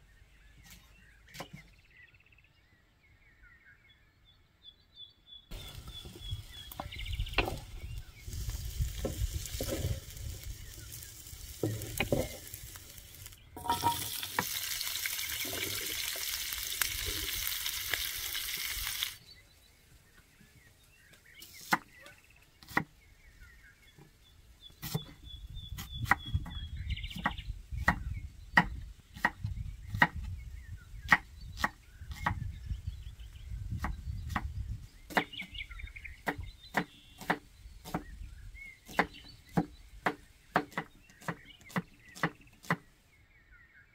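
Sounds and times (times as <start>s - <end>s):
eggplant sizzling in oil: 5.6s - 19.2s
wooden spatula scraping pan: 8.5s - 14.6s
knife chopping on wooden board: 22.6s - 22.9s, 36.2s - 38.1s, 38.9s - 42.8s.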